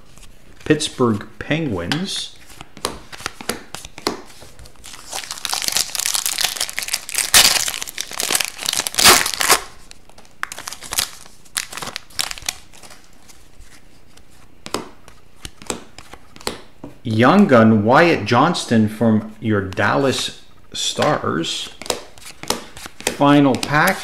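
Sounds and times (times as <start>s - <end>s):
foil wrapper tearing and crinkling: 4.8s - 13.0s
cards snapping and clicking: 21.8s - 24.0s.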